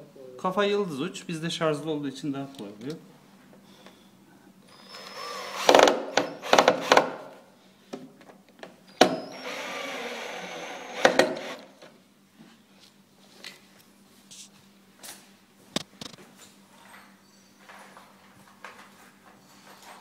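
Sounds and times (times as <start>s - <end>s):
cordless drill motor: 4.7s - 7.0s, 9.2s - 11.9s.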